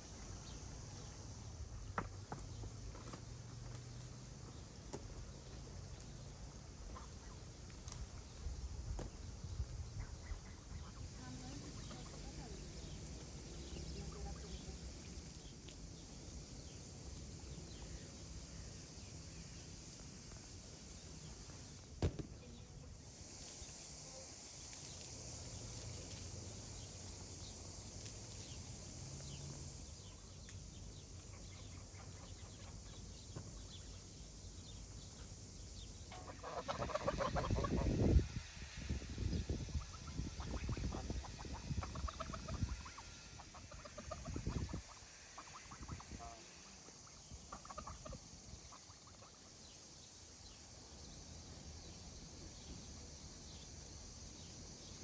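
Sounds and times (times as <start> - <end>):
faint poultry sounds: 9.6 - 15.8, 35.1 - 49.9
geese calling loudly: 36.1 - 38.2, 39.7 - 49.4.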